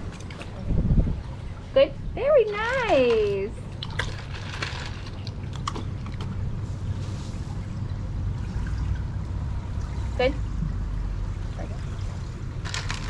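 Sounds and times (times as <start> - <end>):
low hum: 0.0 - 13.0
running water: 0.0 - 13.0.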